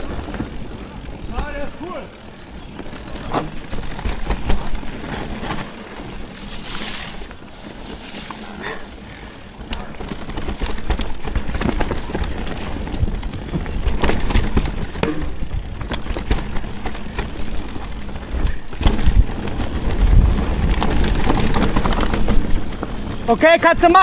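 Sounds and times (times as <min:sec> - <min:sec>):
bike rattling over bumps: 0:00.0 - 0:24.0
bike tyres on dirt trail: 0:00.0 - 0:24.0
wind rumbling on microphone: 0:10.8 - 0:23.3.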